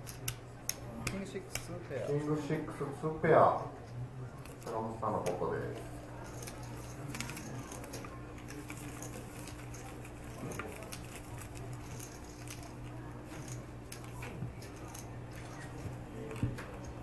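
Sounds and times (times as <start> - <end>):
playing cards and chips clicking: 0.0 - 1.8, 6.2 - 17.0
low room hum: 0.0 - 17.0.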